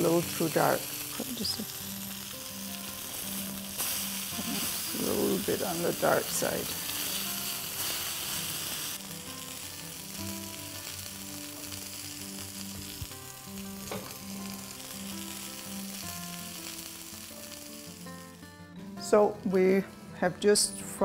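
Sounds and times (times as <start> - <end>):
meatballs sizzling in a skillet: 0.0 - 18.4.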